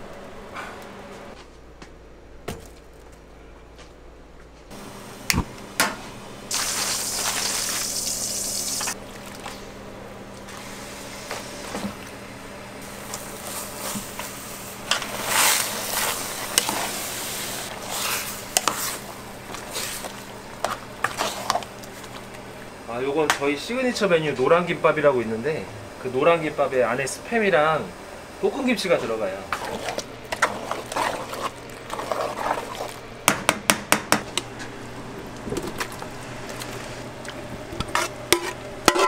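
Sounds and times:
food sizzling in a pan: 0:06.5 - 0:09.0, 0:12.8 - 0:21.6
scraping and knocking in pan: 0:37.8 - 0:39.0.

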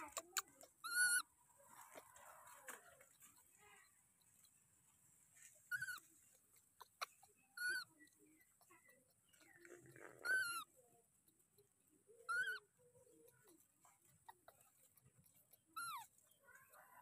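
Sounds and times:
infant monkey squeaky calls: 0:00.0 - 0:02.0, 0:05.6 - 0:10.9, 0:12.0 - 0:16.8.

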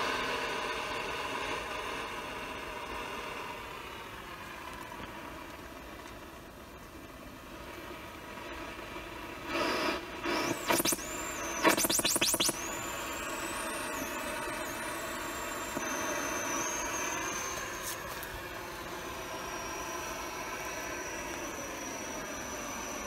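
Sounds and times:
steady electronic hum: 0:00.0 - 0:23.0
bursts of static: 0:09.5 - 0:23.0
electronic chirps and sweeps: 0:10.3 - 0:23.0
thin high wavering whistle: 0:10.4 - 0:23.0.

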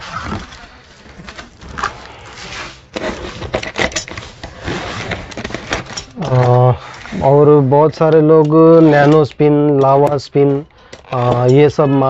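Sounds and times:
box cutter scraping cardboard: 0:00.0 - 0:06.2, 0:08.6 - 0:09.3
cardboard flaps rustling: 0:00.0 - 0:09.1.

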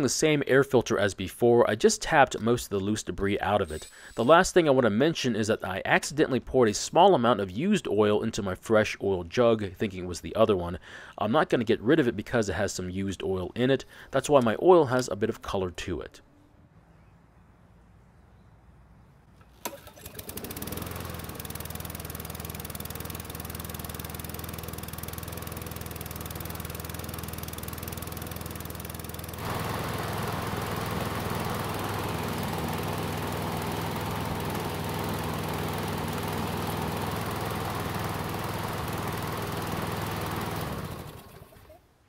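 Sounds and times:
lawn mower engine running: 0:19.4 - 0:41.8.

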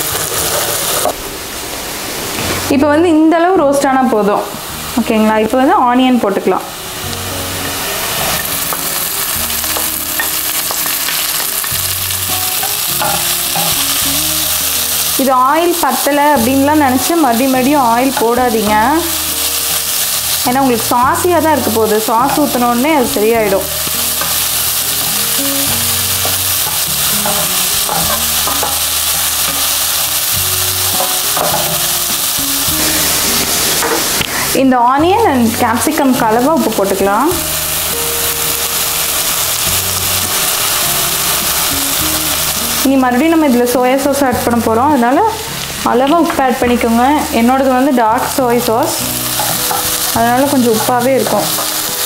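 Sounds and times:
spoon scraping a pan: 0:00.0 - 0:01.2, 0:07.6 - 0:14.2, 0:23.3 - 0:34.2
onion sizzling in oil: 0:00.0 - 0:52.0.

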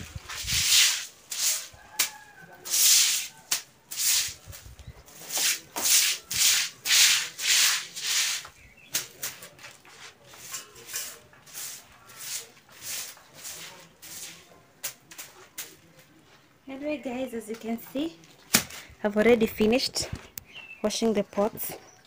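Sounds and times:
broom sweeping water on floor: 0:00.0 - 0:15.8.

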